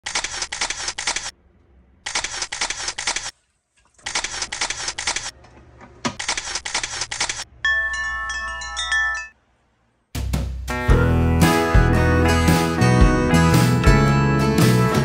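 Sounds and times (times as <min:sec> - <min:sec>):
camera shutter clicks: 0:00.0 - 0:01.3, 0:02.1 - 0:03.3, 0:04.1 - 0:05.3, 0:06.2 - 0:07.4.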